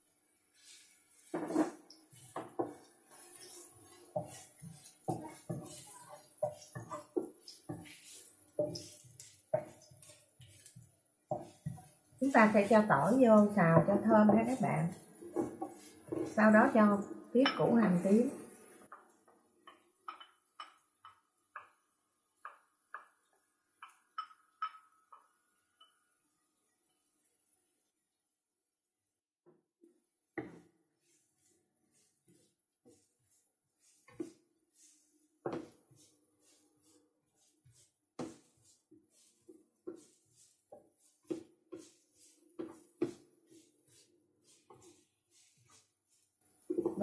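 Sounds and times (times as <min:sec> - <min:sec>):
wooden spatula scraping a pan: 0:00.5 - 0:19.0, 0:30.3 - 0:47.0
wooden spatula clinking ceramic bowl: 0:17.4 - 0:17.8, 0:19.6 - 0:21.8, 0:23.8 - 0:26.1.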